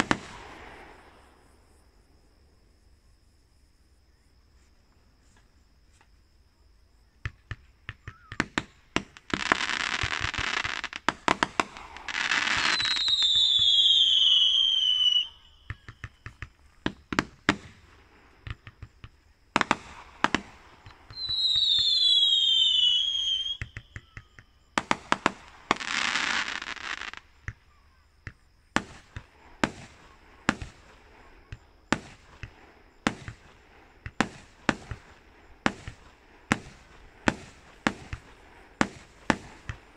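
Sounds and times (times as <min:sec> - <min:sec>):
fireworks bangs and crackling pops: 0:00.0 - 0:01.9, 0:07.1 - 0:39.9
falling firework whistles: 0:00.0 - 0:02.0, 0:07.2 - 0:39.9
fireworks hissing rushes: 0:08.1 - 0:27.6, 0:28.4 - 0:39.9.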